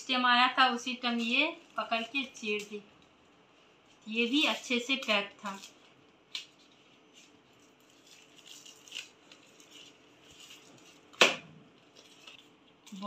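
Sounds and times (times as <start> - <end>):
plastic packaging crinkling: 0.9 - 13.0.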